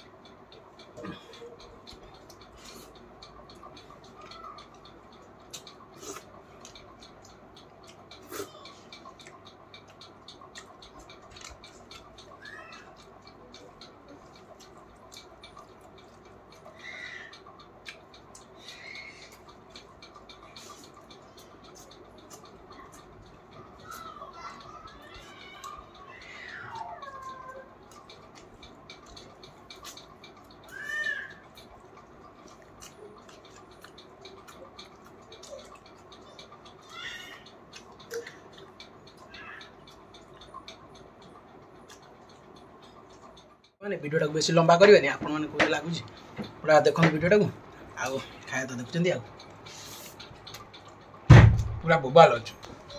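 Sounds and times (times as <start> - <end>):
faint clicking: 0.0 - 52.9
mouth smacking and chewing: 0.8 - 43.8, 47.5 - 51.2.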